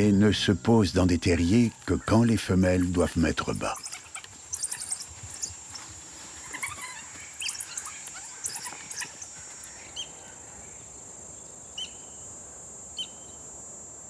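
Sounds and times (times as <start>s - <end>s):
high chirps and squeaks: 1.4s - 9.3s.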